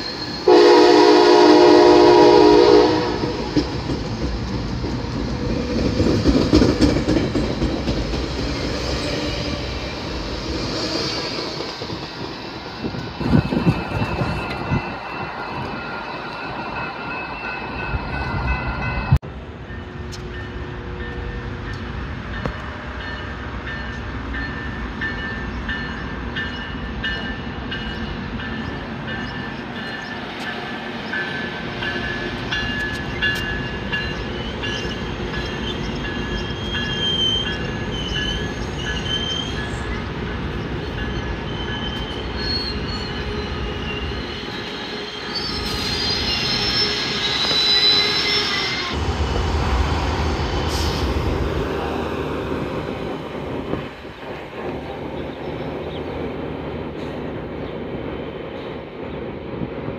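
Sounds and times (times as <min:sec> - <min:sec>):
wheels squealing against rails: 0:00.0 - 0:01.3, 0:05.8 - 0:49.1
train rolling rumble: 0:00.0 - 0:59.9.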